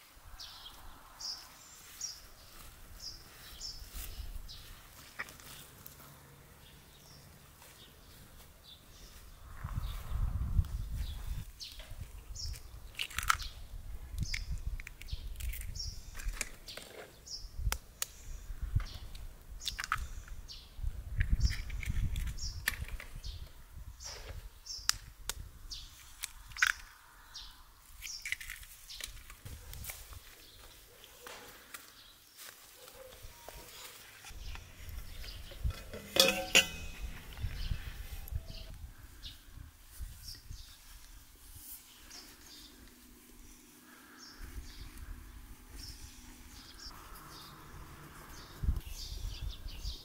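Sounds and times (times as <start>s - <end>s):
small birds chirping: 0.3s - 50.0s
metal kitchenware clinking: 35.5s - 37.4s.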